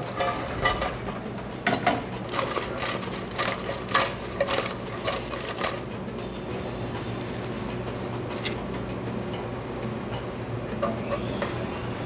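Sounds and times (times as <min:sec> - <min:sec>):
food rattling in metal bowl: 0:00.0 - 0:01.2, 0:02.2 - 0:05.9.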